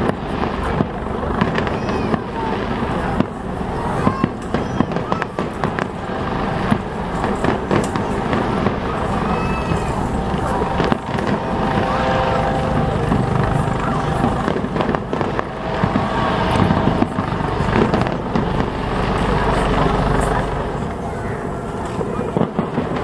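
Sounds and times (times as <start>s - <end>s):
crowd chatter: 0.0s - 23.0s
firework shells bursting: 0.0s - 23.0s
low rumble: 5.5s - 23.0s.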